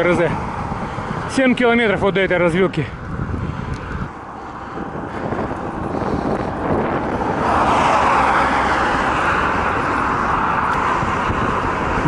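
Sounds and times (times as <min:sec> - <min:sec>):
cars driving past: 0:00.0 - 0:12.0
wind on microphone: 0:00.0 - 0:12.0.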